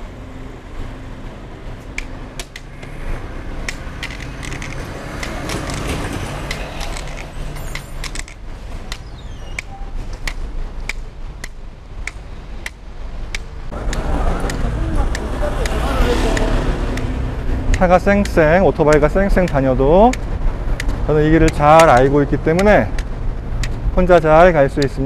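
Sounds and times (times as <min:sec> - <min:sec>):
road traffic: 0:00.0 - 0:25.0
cane tip tapping on asphalt: 0:03.6 - 0:05.8, 0:10.2 - 0:23.8.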